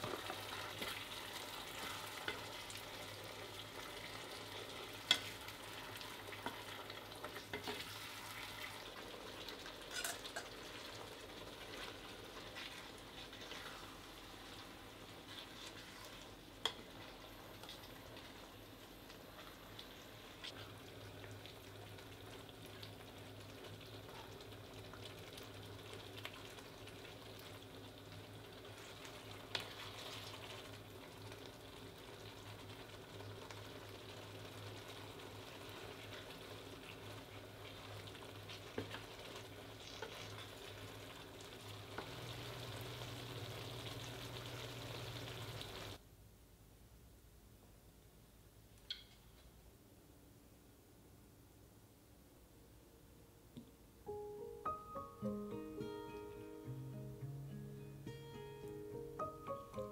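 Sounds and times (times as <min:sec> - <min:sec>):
pasta sizzling in a frying pan: 0:00.0 - 0:46.0.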